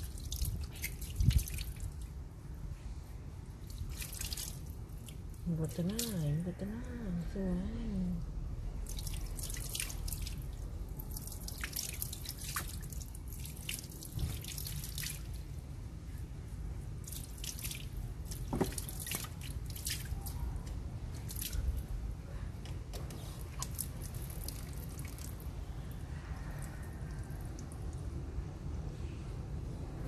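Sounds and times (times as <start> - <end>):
water dripping and splashing: 0.0 - 2.3, 3.4 - 6.5, 8.8 - 15.7, 16.9 - 22.0, 23.0 - 28.2
steady low rumble: 20.1 - 30.0.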